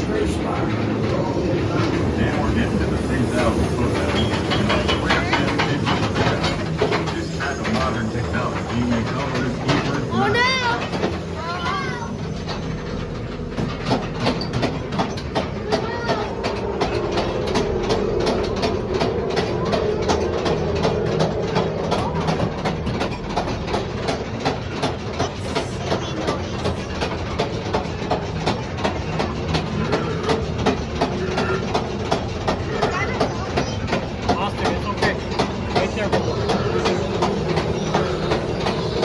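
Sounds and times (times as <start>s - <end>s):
steady hum: 0.0s - 39.0s
train rumble: 0.0s - 39.0s
train wheels clicking on rail joints: 0.0s - 39.0s.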